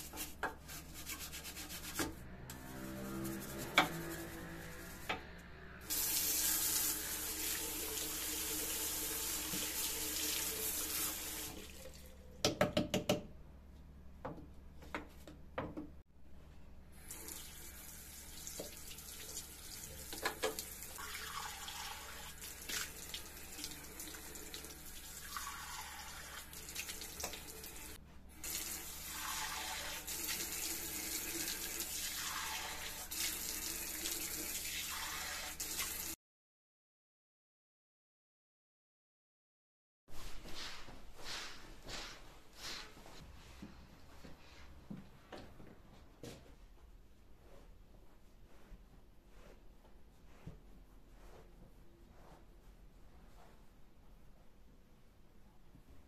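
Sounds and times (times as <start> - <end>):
tap water running into basin: 5.9 - 12.2, 17.0 - 36.2.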